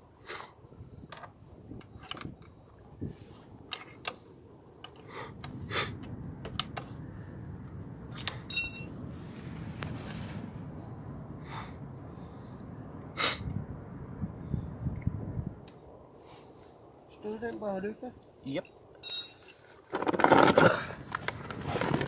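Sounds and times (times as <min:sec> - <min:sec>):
ringing metal clink: 0:08.2 - 0:08.9, 0:19.0 - 0:19.5.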